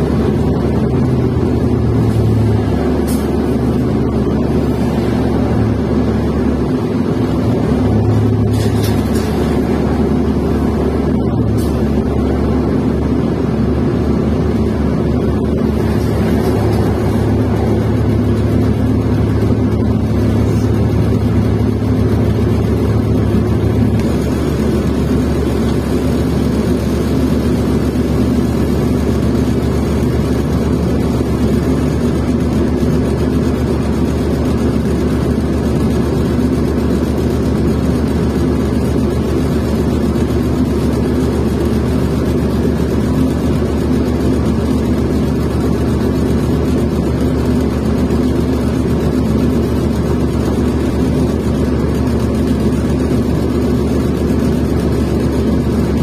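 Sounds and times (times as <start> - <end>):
bus engine drone: 0.0 - 56.0.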